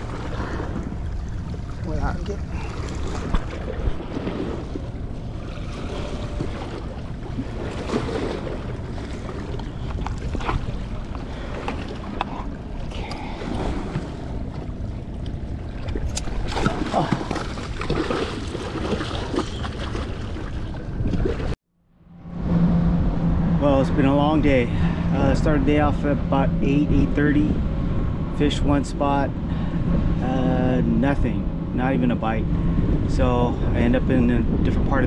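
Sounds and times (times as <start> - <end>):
wind buffeting microphone: 22.2 - 35.0.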